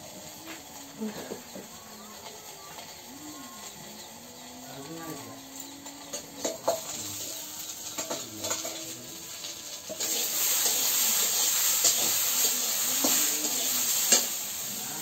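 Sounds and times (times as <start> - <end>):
food sizzling in a hot pan: 0.0 - 15.0
metal ladle scraping a pan: 5.5 - 14.7.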